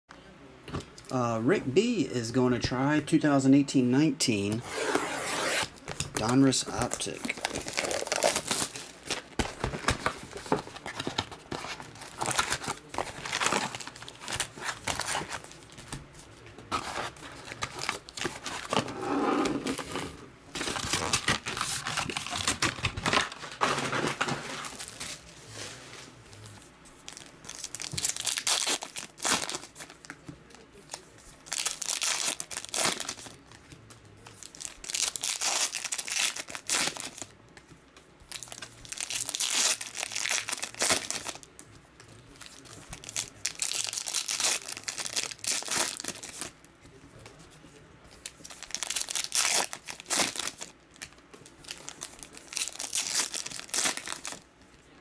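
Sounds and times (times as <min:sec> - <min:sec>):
cellophane wrap tearing and crumpling: 0:05.3 - 0:09.3, 0:10.3 - 0:15.7, 0:20.6 - 0:25.2, 0:27.1 - 0:30.0, 0:30.9 - 0:33.4, 0:34.4 - 0:37.3, 0:38.3 - 0:41.5, 0:42.4 - 0:46.6, 0:48.4 - 0:54.4
foil packs crinkling and ripping: 0:05.3 - 0:15.9, 0:16.7 - 0:18.9, 0:20.6 - 0:25.2, 0:27.1 - 0:37.4, 0:38.3 - 0:41.5, 0:42.2 - 0:46.6, 0:48.2 - 0:54.4.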